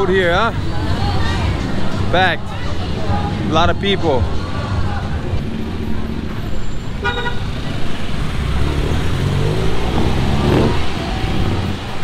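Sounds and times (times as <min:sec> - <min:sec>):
traffic rumble: 0:00.0 - 0:12.0
tuk-tuk engine passing: 0:04.2 - 0:12.0.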